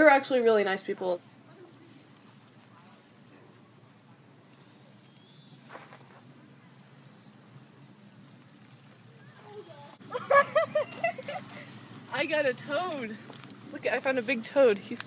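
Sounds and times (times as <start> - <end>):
cricket chirping: 1.2 - 9.8.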